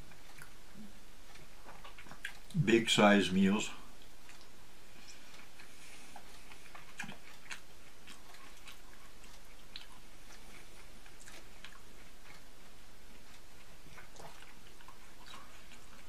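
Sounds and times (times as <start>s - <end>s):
chewing: 0.0s - 2.6s, 3.8s - 16.0s
steady hiss: 2.5s - 4.0s.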